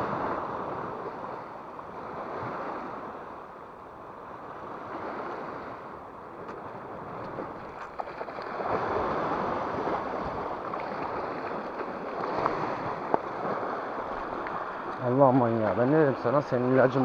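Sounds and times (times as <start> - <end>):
sea waves washing over rocks: 4.2 - 17.0.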